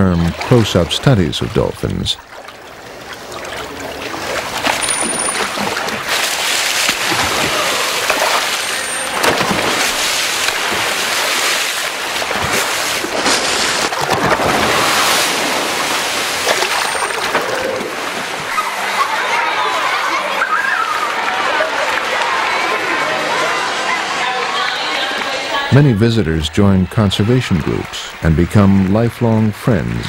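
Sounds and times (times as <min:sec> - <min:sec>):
dolphins splashing: 0:00.0 - 0:28.6
churning water: 0:00.0 - 0:30.0.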